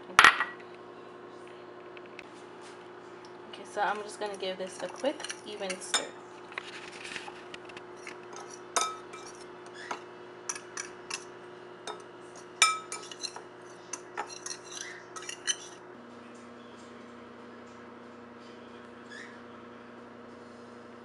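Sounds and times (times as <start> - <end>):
fork scraping in bowl: 8.0 - 11.3, 11.9 - 15.8
fork tines clinking against bowl: 8.3 - 11.3, 11.9 - 15.8.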